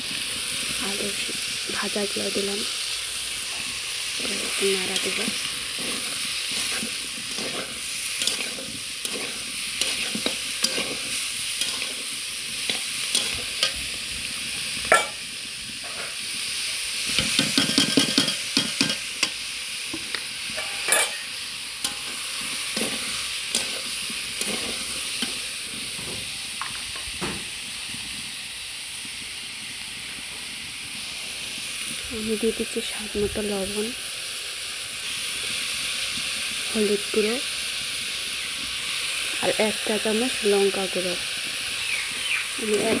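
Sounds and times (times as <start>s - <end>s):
vegetables sizzling in oil: 0.0s - 43.0s
metal spatula scraping pan: 4.2s - 12.1s, 14.9s - 15.2s, 20.6s - 21.3s
spatula knocking on pan: 14.9s - 15.2s.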